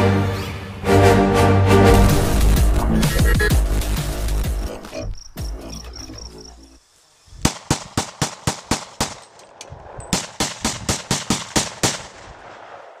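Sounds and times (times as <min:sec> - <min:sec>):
music track: 0:00.0 - 0:04.9
pistol shots: 0:07.4 - 0:12.9.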